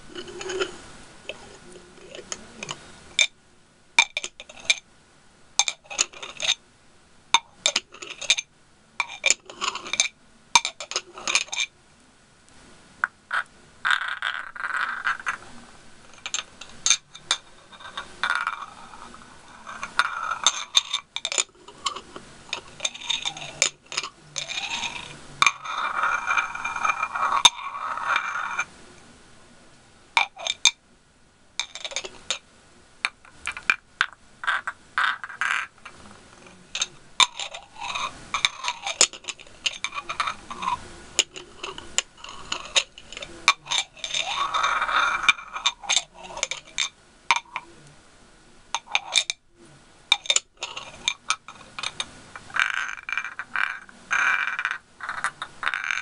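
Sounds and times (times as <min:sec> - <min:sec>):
nails scraping glass ribs: 0:00.1 - 0:03.3, 0:13.0 - 0:28.7, 0:33.1 - 0:47.7, 0:50.1 - 0:56.0.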